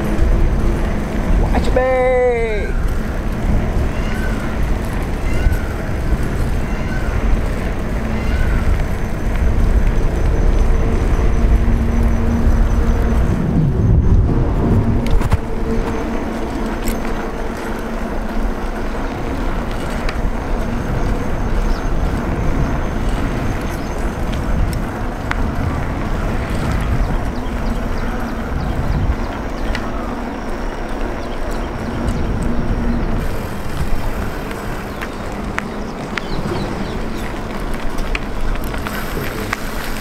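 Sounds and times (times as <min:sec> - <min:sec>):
bicycle tyre noise: 0:00.0 - 0:40.0
bike clicks and rattles: 0:00.0 - 0:40.0
wind buffeting microphone: 0:00.0 - 0:40.0.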